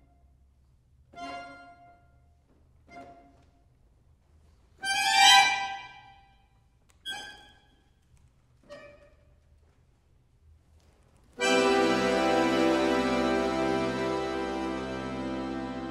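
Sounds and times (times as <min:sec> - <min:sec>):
accordions playing sustained chords: 0:04.8 - 0:05.8, 0:11.4 - 0:15.9.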